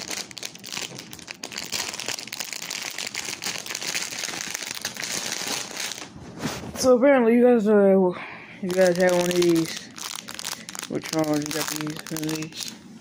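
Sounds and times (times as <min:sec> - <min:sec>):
plastic packaging crinkling: 0:00.0 - 0:06.2, 0:08.6 - 0:12.8.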